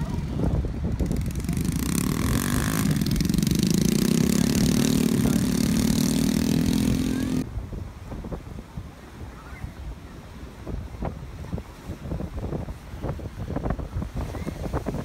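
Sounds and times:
quad bike engines running: 0.0 - 7.5.

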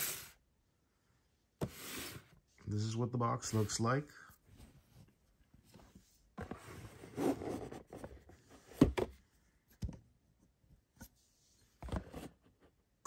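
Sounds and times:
cardboard box scraping on table: 1.6 - 2.3, 6.4 - 8.4.

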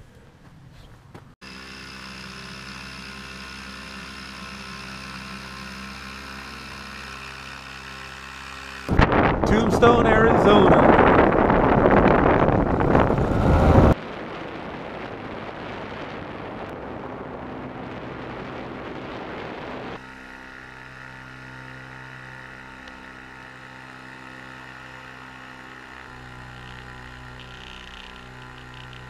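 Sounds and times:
paraglider engine drone: 1.4 - 29.0
wind rushing: 8.9 - 20.0.

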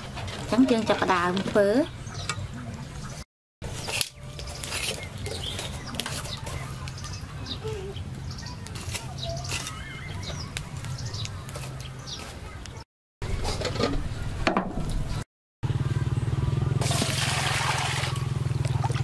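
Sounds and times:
faint bird chirps: 3.8 - 12.8.

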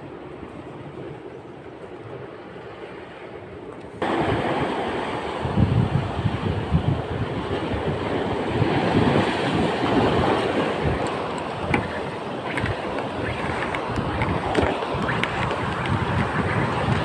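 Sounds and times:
waves breaking on rocks: 4.0 - 17.0
wind buffeting microphone: 4.0 - 17.0.

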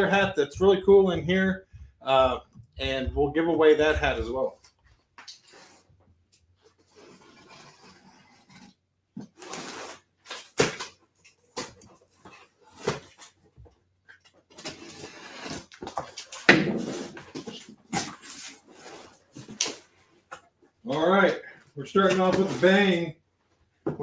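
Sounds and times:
cardboard rustling: 6.6 - 23.1
packing tape and flaps scraping: 6.7 - 13.4, 14.2 - 20.4.

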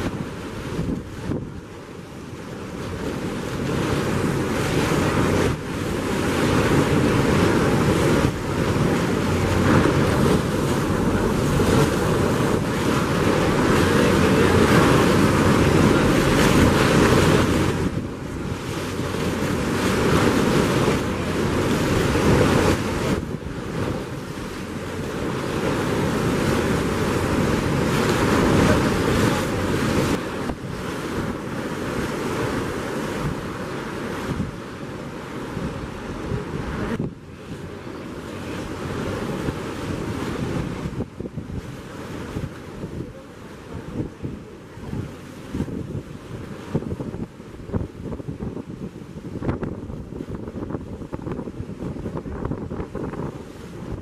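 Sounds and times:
wind buffeting microphone: 0.0 - 54.0
waterfall rushing: 7.0 - 18.2.

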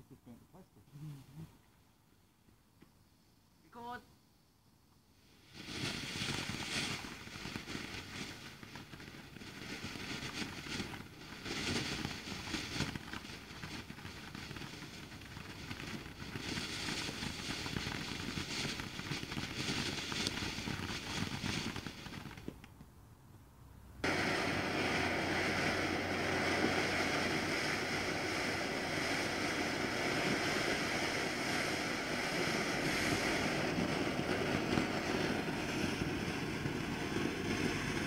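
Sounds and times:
firework fountain hissing: 5.2 - 22.6, 24.0 - 38.0.

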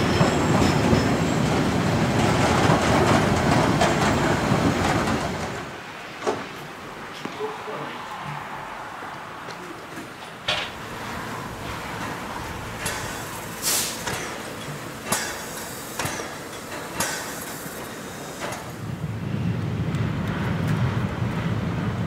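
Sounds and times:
steam locomotive bursts of steam: 10.8 - 18.8.

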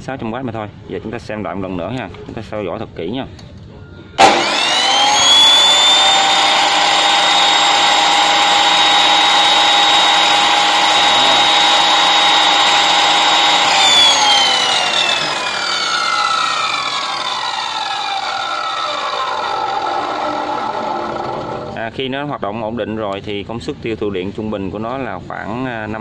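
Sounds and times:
cut-off saw motor whine: 4.2 - 21.8.

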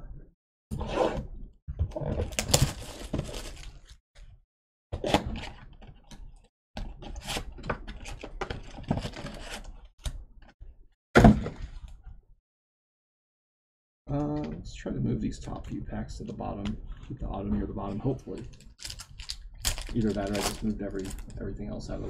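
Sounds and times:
card packs rustling and scraping: 2.3 - 3.9, 18.0 - 21.3.

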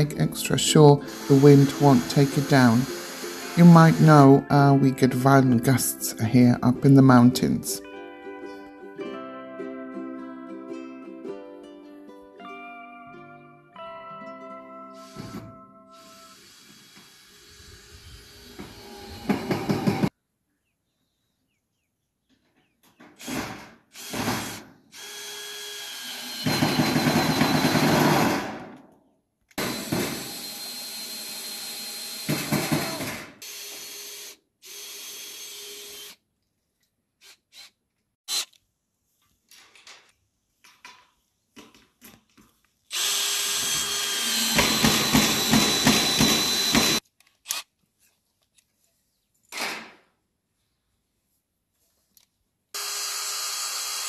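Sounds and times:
cordless drill driving screws: 0.8 - 4.4, 16.0 - 20.1, 23.2 - 28.3, 29.5 - 36.2, 37.2 - 38.6, 42.9 - 47.7, 52.8 - 54.0.

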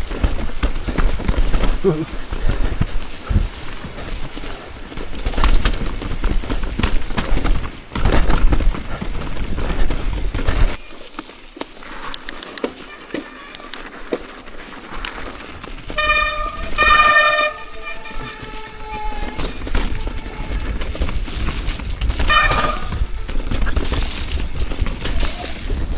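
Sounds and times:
tyres rumbling on dirt: 0.0 - 12.0, 12.6 - 25.9
bike chain and frame clattering: 0.0 - 25.9
scattered ticks: 11.2 - 14.1.

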